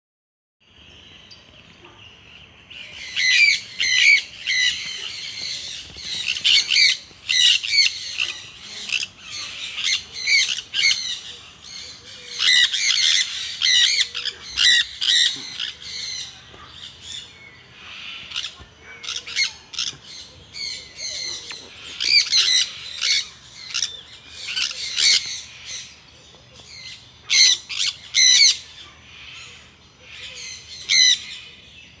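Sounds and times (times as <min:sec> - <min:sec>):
parrot squawking: 0:06.3 - 0:11.2, 0:12.3 - 0:16.2.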